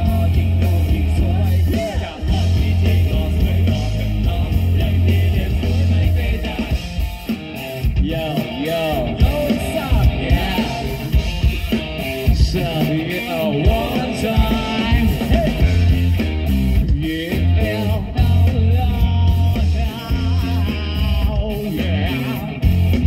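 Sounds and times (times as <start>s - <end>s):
man singing: 0.0s - 7.1s, 7.8s - 11.5s, 12.2s - 16.2s, 16.8s - 23.0s
bass guitar: 0.0s - 23.0s
drums: 0.0s - 23.0s
electric guitar: 0.0s - 23.0s.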